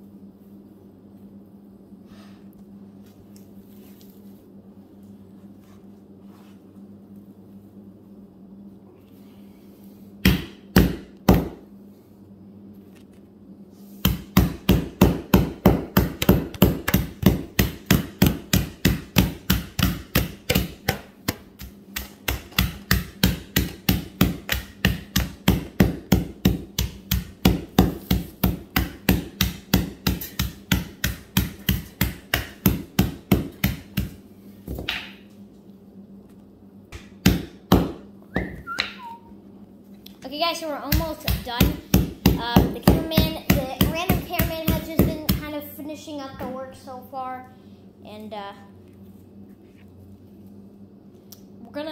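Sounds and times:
rubber mallet pounding charcoal: 0:10.2 - 0:11.6, 0:14.0 - 0:34.2, 0:36.9 - 0:38.0, 0:40.8 - 0:45.5.

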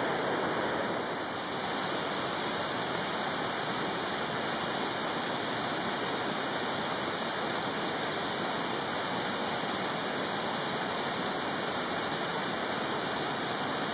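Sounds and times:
stream water flowing: 0:00.0 - 0:13.9.

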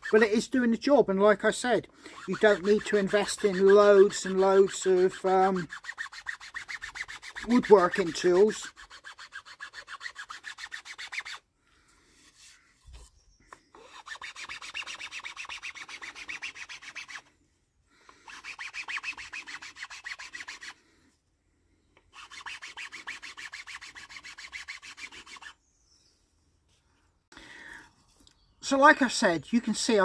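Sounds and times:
file rasping on wood: 0:02.1 - 0:11.4, 0:13.8 - 0:17.2, 0:18.2 - 0:20.8, 0:22.2 - 0:25.6.

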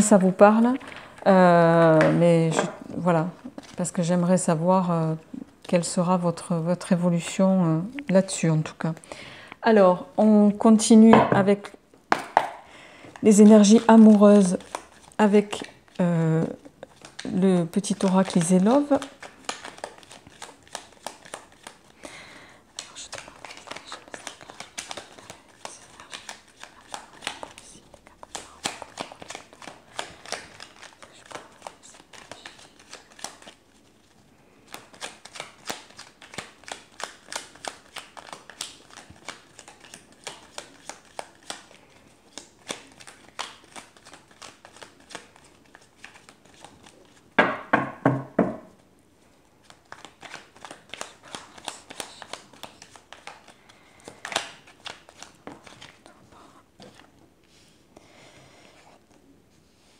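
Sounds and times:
cards being shuffled: 0:12.1 - 0:47.3, 0:49.6 - 0:57.2.

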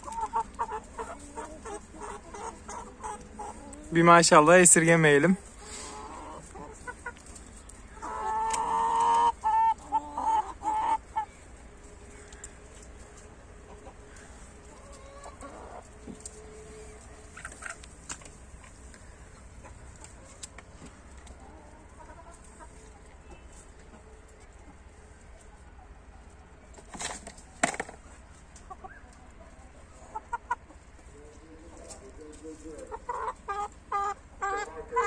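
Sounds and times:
chickens clucking: 0:00.0 - 0:35.0
chicken loud call: 0:08.0 - 0:11.3.

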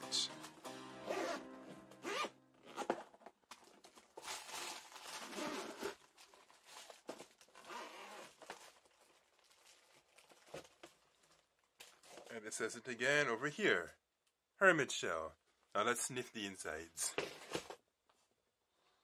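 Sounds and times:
zipper rasping open: 0:01.1 - 0:01.4, 0:02.0 - 0:03.0, 0:05.2 - 0:06.0, 0:07.6 - 0:08.4
plastic wrap crinkling: 0:03.4 - 0:12.4.

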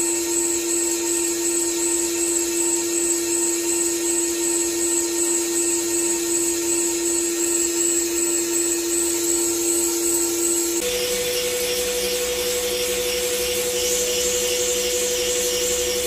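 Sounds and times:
lathe machine whine: 0:00.0 - 0:16.0
high cutting hiss: 0:10.8 - 0:16.0.

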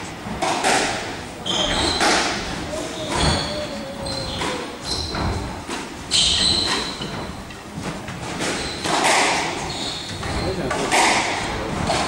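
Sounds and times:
squash ball hit by rackets: 0:00.3 - 0:01.1, 0:08.3 - 0:09.6, 0:10.7 - 0:12.0
shoes squeaking on wooden floor: 0:01.4 - 0:11.1.

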